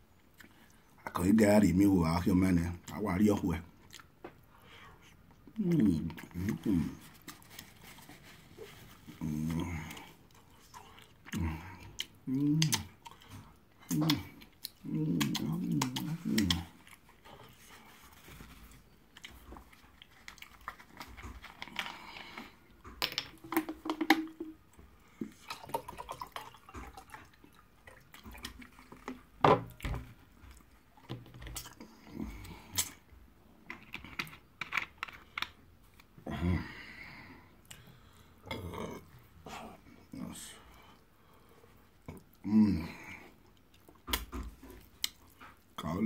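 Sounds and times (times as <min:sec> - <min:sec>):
chewing: 0:05.0 - 0:23.0, 0:25.1 - 0:29.4, 0:41.8 - 0:45.8
lip smacks: 0:09.9 - 0:17.0.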